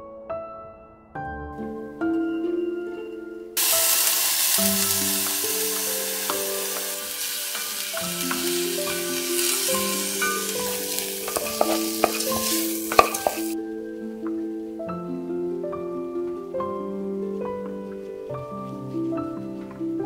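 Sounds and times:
music with plucked notes: 0:01.5 - 0:20.0
rice sizzling in a pot: 0:03.6 - 0:13.6
wooden spoon tapping and scraping: 0:05.1 - 0:13.6.

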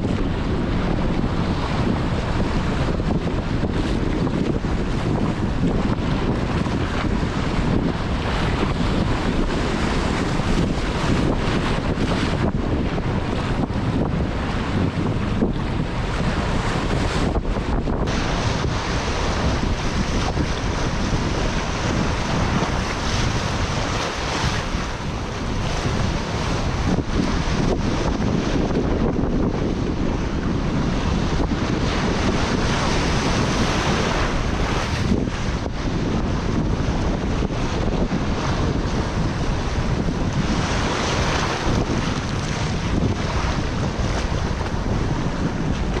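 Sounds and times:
sea waves breaking on rocks: 0:00.0 - 0:46.0
wind noise on microphone: 0:00.0 - 0:46.0.

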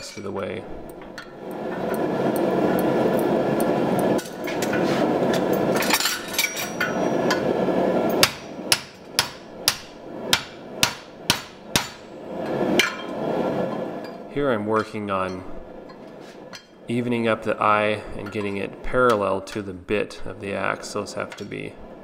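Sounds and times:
hammer striking steel: 0:08.1 - 0:12.2.

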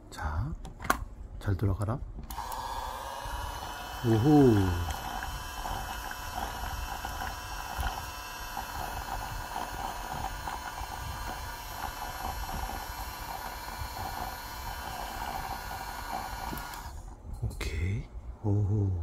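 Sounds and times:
toy washing machine motor running: 0:02.3 - 0:17.1
liquid churning in plastic tub: 0:02.9 - 0:17.0.

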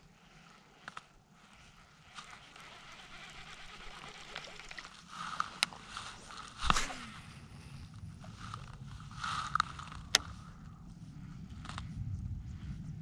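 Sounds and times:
fishing reel click: 0:02.2 - 0:07.0
rod swish and bump: 0:05.8 - 0:07.2.

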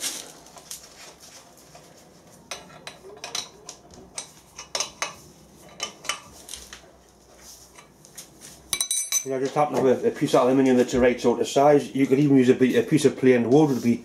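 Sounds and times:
hand tool clinking on metal vise: 0:08.7 - 0:09.4.

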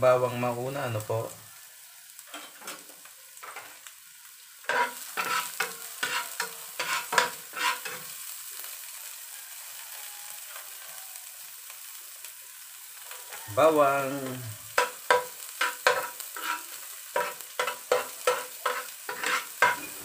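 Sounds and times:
onion sizzling in frying pan: 0:00.0 - 0:20.0
spatula scraping pan: 0:04.7 - 0:08.1, 0:14.8 - 0:20.0.

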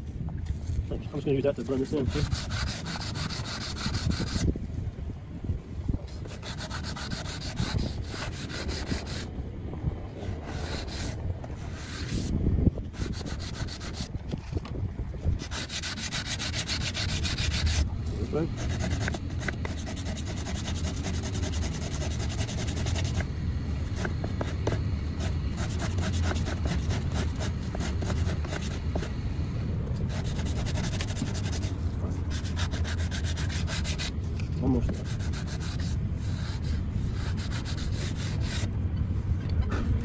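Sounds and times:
sanding block rubbing wood: 0:01.6 - 0:04.5, 0:06.3 - 0:09.3, 0:10.4 - 0:12.3, 0:12.9 - 0:14.1, 0:15.4 - 0:17.8, 0:18.5 - 0:23.2, 0:23.9 - 0:29.1, 0:30.1 - 0:34.1, 0:34.9 - 0:38.7.

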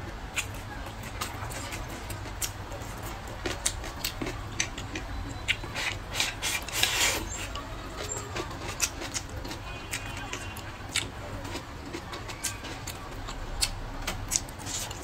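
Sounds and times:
wet chewing: 0:00.0 - 0:15.0
noodle slurping: 0:04.3 - 0:09.2.

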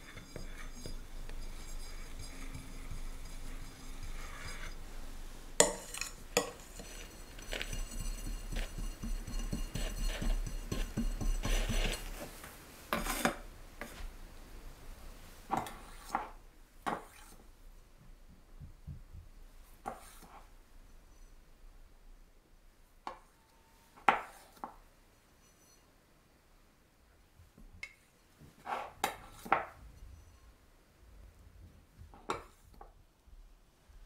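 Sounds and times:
spatula smearing buttercream: 0:00.0 - 0:14.0.

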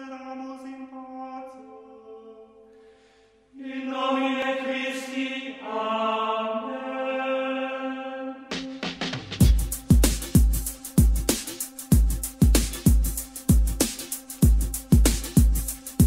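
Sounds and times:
slow chanted singing: 0:00.0 - 0:09.0.

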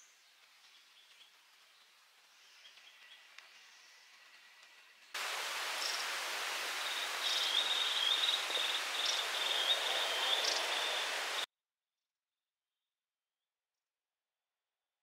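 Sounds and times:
steady forest hiss: 0:00.0 - 0:11.5.

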